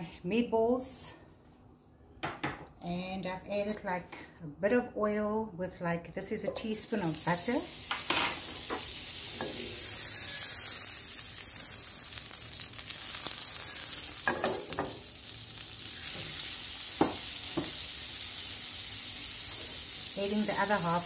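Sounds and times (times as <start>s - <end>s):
butter sizzling in frying pan: 6.8s - 21.0s.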